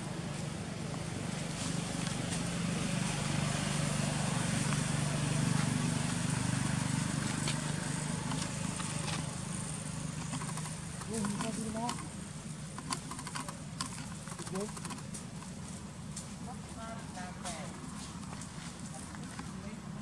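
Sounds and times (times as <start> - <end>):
vehicle engine humming: 0.0 - 20.0.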